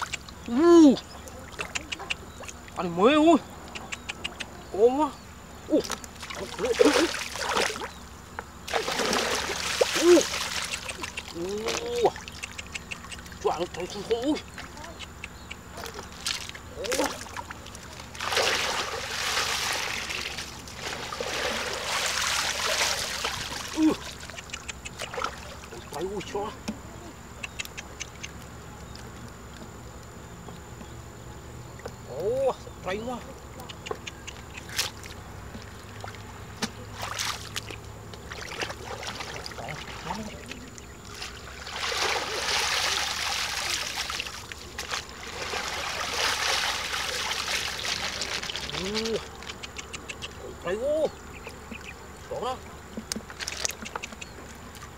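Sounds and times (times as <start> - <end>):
muddy water sloshing and splashing: 5.8 - 26.1, 34.6 - 49.8, 51.7 - 54.9.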